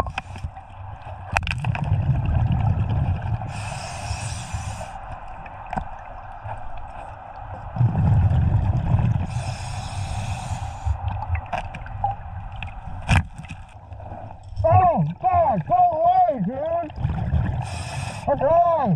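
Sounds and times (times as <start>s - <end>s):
exhaled bubbles rumbling: 0.0s - 18.9s
regulator inhalation hiss: 3.5s - 5.0s, 9.3s - 11.0s, 17.6s - 18.3s.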